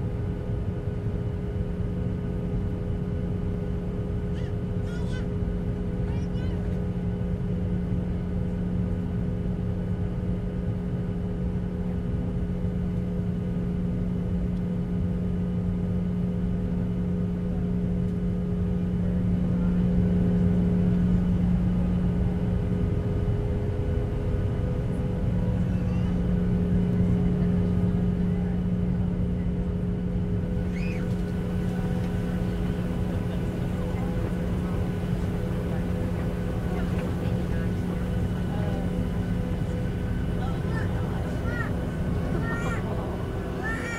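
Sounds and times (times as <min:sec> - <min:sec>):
jet engines rumbling in cabin: 0:00.0 - 0:43.9.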